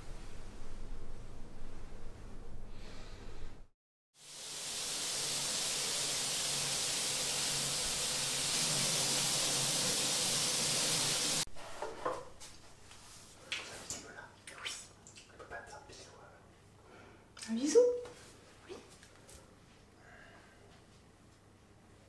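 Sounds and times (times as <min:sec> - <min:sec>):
faint room hiss: 0:00.0 - 0:22.0
shower water spraying: 0:04.2 - 0:11.5.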